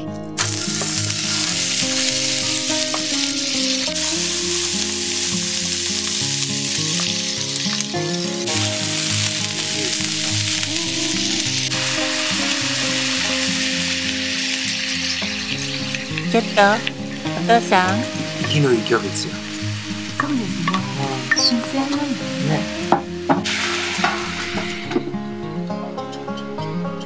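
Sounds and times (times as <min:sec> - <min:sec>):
chicken sizzling on a griddle: 0:00.4 - 0:16.2, 0:23.4 - 0:24.9.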